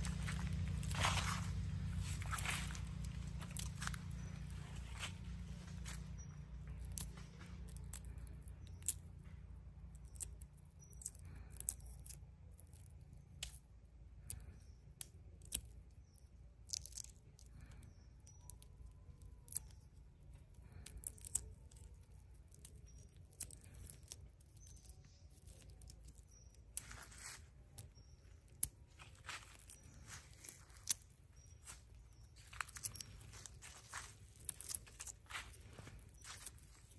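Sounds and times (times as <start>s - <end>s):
low rumble: 0.0s - 10.7s
egg shell crackling as peeled: 9.9s - 36.9s.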